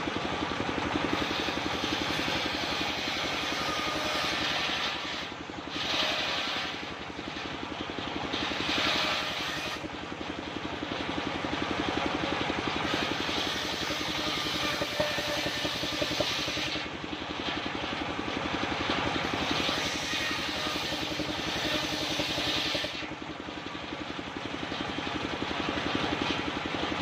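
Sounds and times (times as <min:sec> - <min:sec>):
engine chugging: 0:00.0 - 0:27.0
saw blade hissing through wood: 0:02.4 - 0:06.8.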